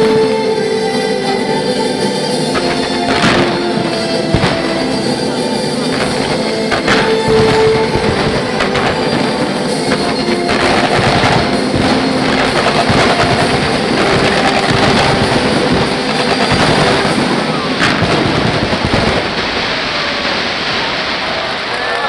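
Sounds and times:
fireworks bursting: 0:00.0 - 0:22.0
sharp firework crack: 0:02.4 - 0:22.0.

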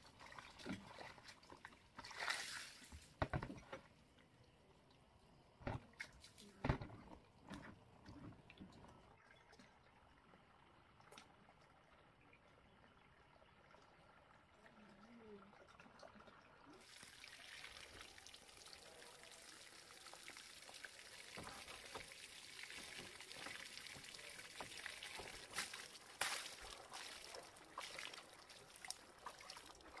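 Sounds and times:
water trickling and pouring: 0:07.4 - 0:30.0.

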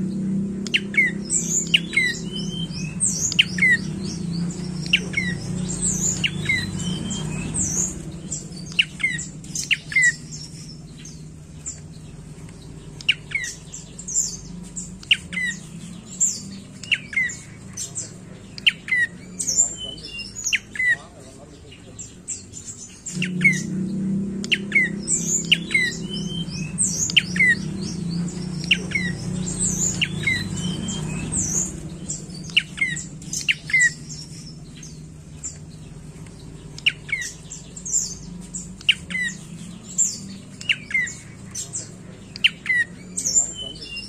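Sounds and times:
bird calling: 0:00.0 - 0:44.0
low hum: 0:22.4 - 0:43.2.

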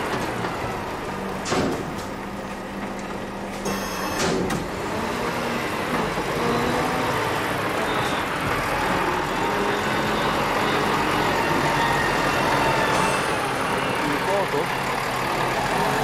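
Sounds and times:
diesel truck engine driving past: 0:04.7 - 0:16.0.

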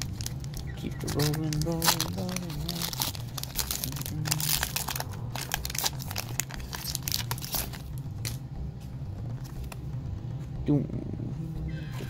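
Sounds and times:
foil wrapper crinkling and tearing: 0:00.0 - 0:08.4.

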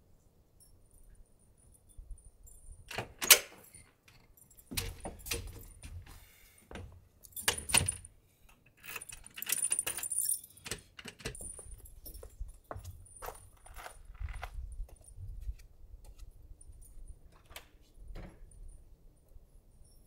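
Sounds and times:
sliding door clicks and knocks: 0:04.7 - 0:06.0
keys jangling: 0:07.2 - 0:08.1, 0:08.8 - 0:13.9.

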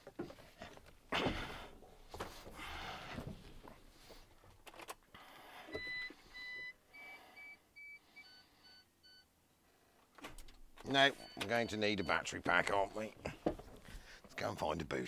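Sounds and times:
dashboard warning beeps: 0:05.7 - 0:09.3, 0:10.9 - 0:12.9.

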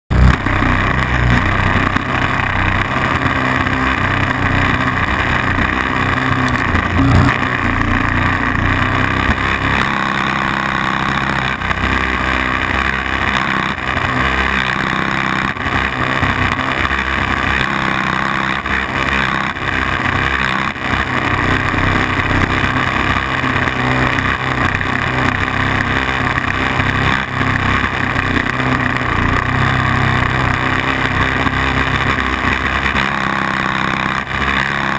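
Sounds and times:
model aircraft engine running: 0:00.1 - 0:34.9.

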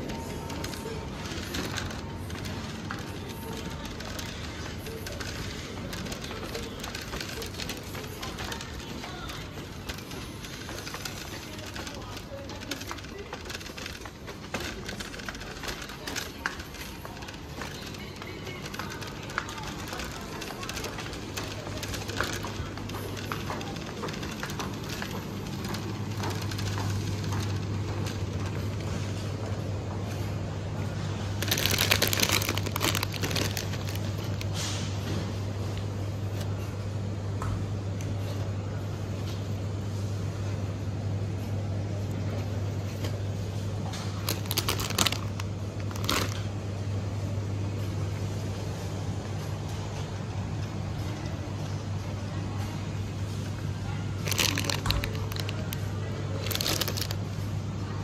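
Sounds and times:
packaging crinkling: 0:31.4 - 0:34.6, 0:44.0 - 0:46.5, 0:54.2 - 0:57.2.

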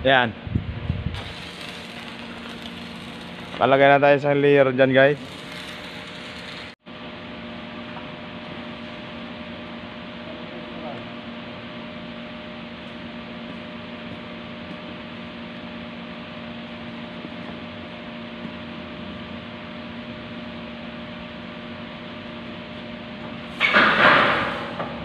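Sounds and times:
machine hum with tones: 0:00.0 - 0:23.5
arc welder crackling hiss: 0:01.1 - 0:06.8.

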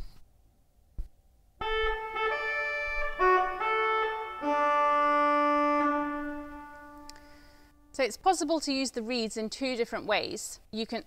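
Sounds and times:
pipe organ playing: 0:01.6 - 0:07.4.

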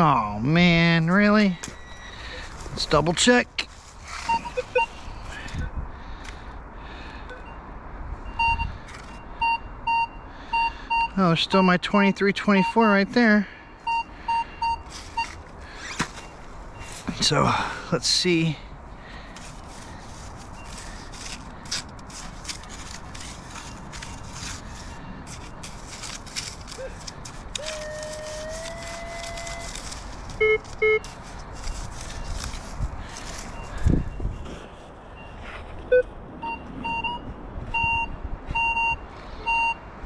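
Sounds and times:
metal detector beeping: 0:01.6 - 0:02.4, 0:04.2 - 0:05.0, 0:08.3 - 0:17.0, 0:20.4 - 0:21.4, 0:26.6 - 0:32.6, 0:35.2 - 0:37.2, 0:37.8 - 0:39.8
leaf litter rustling: 0:14.9 - 0:16.2, 0:19.1 - 0:33.8.

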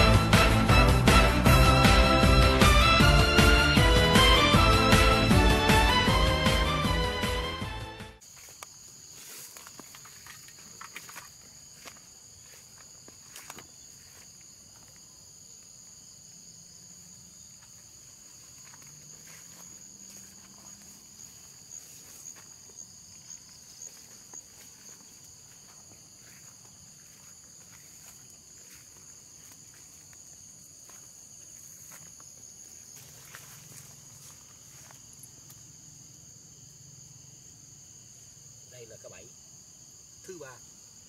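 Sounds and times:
rustles of walking through foliage: 0:08.2 - 0:15.0, 0:17.6 - 0:35.4
high-pitched insect chorus: 0:08.2 - 0:41.0.

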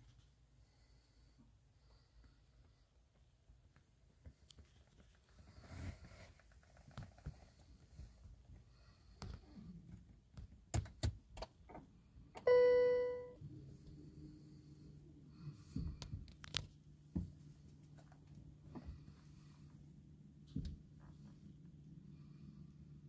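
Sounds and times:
faint steady hum: 0:11.4 - 0:23.0
ringing dashboard chime: 0:12.4 - 0:13.4.

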